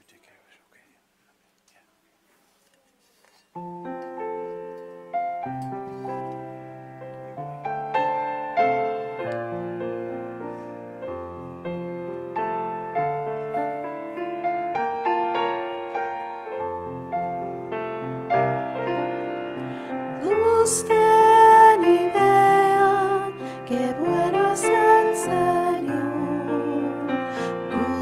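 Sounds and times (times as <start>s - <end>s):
piano playing a hymn: 3.5s - 28.0s
person singing: 20.1s - 28.0s.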